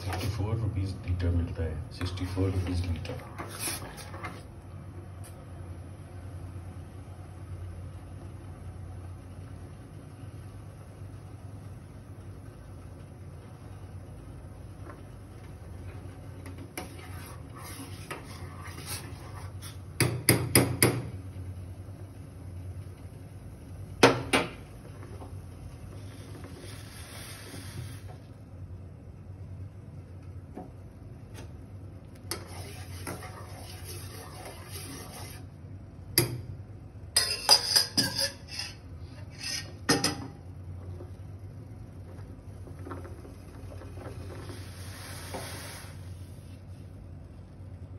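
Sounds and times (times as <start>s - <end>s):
low rumble of boiling milk: 0.0s - 47.9s
faint hissing: 25.4s - 28.4s, 42.4s - 47.0s.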